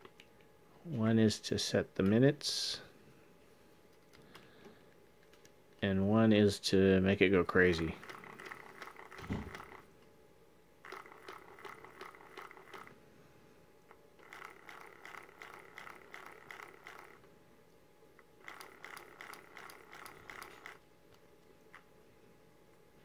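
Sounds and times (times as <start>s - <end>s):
stepper motors whirring and ticking: 10.8s - 12.9s, 14.2s - 17.2s, 18.4s - 20.8s.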